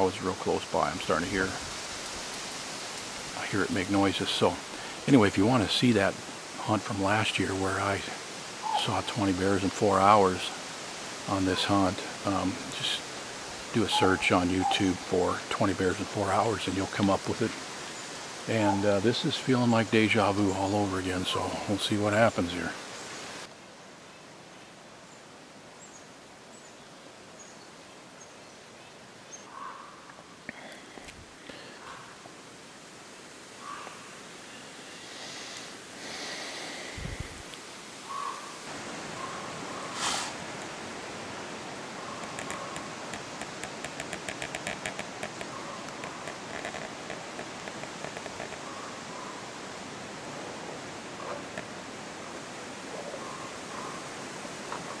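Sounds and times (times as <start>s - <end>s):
soft forest hiss: 0.0s - 55.0s
rapid sharp clicks: 42.2s - 48.6s.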